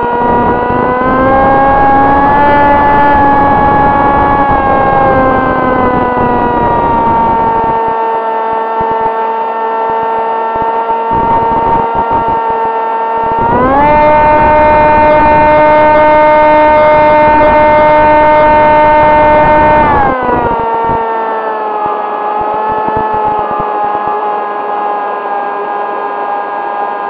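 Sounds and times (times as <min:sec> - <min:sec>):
wind rush: 0:00.0 - 0:07.9, 0:11.1 - 0:12.4, 0:13.2 - 0:16.2, 0:16.9 - 0:21.0, 0:21.8 - 0:23.7
electric motor and propeller whining: 0:00.0 - 0:27.0.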